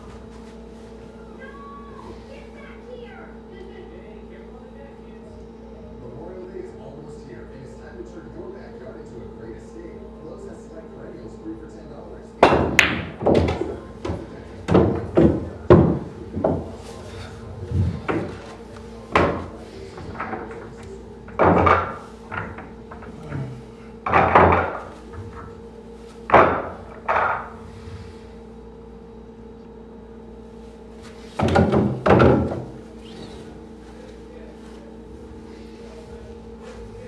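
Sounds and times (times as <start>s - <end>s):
pool balls clacking: 12.4s - 27.6s, 31.0s - 35.1s.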